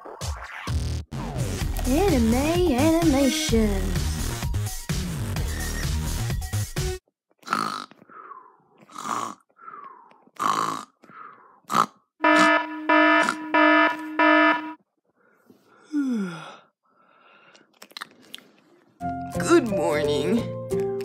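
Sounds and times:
person imitating snoring: 7.4s - 9.5s, 10.4s - 11.0s, 11.7s - 12.0s
electronic alarm beeping: 12.2s - 14.8s.

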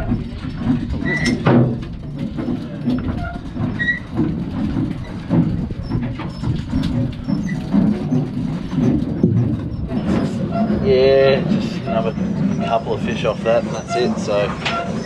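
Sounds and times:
low uneven boat rumble: 0.0s - 15.0s.

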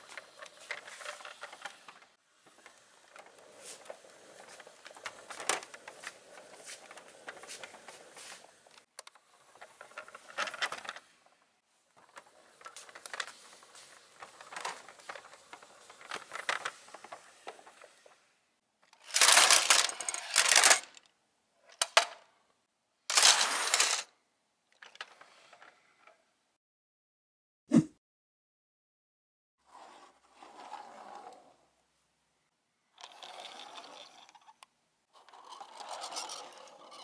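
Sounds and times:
toy cars clattering onto mat: 0.0s - 11.1s, 18.8s - 21.1s, 21.7s - 22.3s, 23.1s - 24.1s
toy cars rattling in truck: 0.0s - 11.3s, 11.9s - 18.1s, 18.9s - 21.1s, 23.1s - 24.1s, 33.0s - 34.6s, 35.2s - 37.0s.

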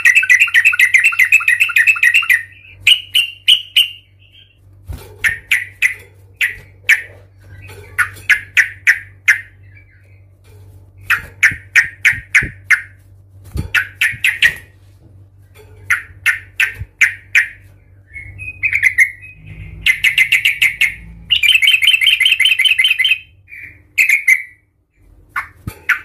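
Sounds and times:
bird chattering trill: 0.0s - 4.6s, 18.4s - 24.6s
bird chuk calls: 0.0s - 4.6s.

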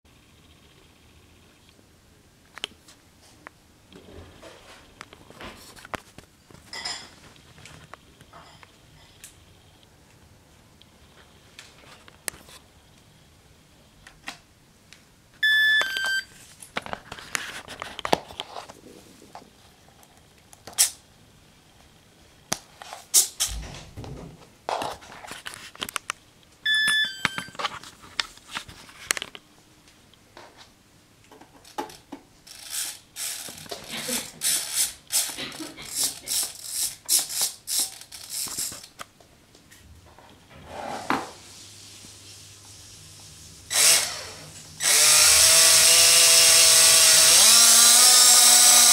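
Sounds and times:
radio transmitter electronic beeps: 15.4s - 16.3s, 26.7s - 27.6s.

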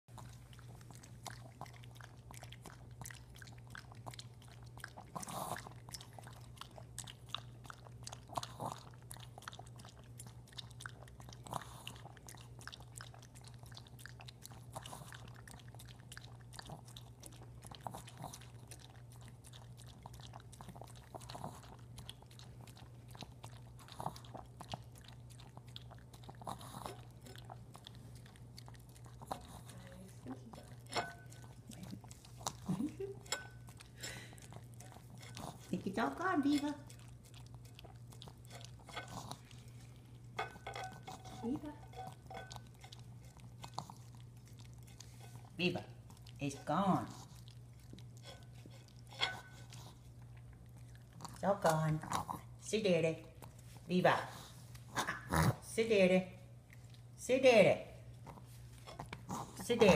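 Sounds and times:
dog slurping: 0.1s - 55.7s, 58.0s - 59.9s
dog licking from plate: 0.1s - 59.9s.

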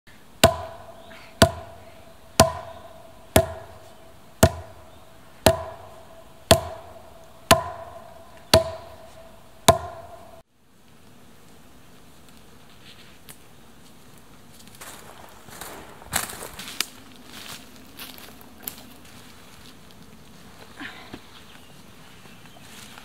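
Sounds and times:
wooden club striking wood: 0.4s - 1.8s, 2.4s - 10.4s.

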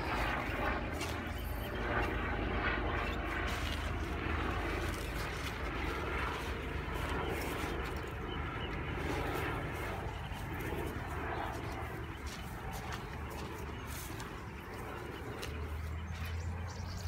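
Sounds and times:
distant motor droning: 0.0s - 17.0s.

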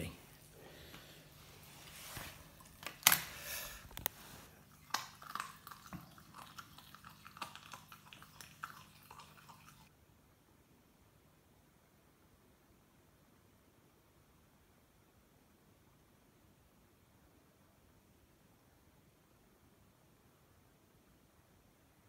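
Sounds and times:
puppy crunching bone: 4.8s - 9.4s.

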